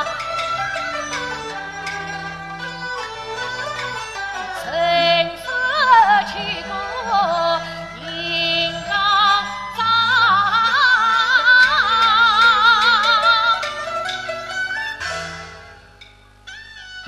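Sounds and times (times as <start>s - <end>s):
instrumental accompaniment: 0.0s - 17.0s
woman singing opera: 4.4s - 13.8s.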